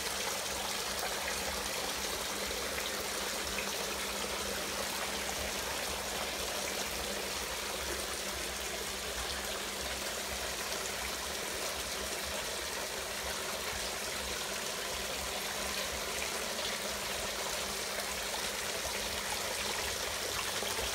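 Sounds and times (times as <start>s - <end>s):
water running: 0.0s - 20.9s.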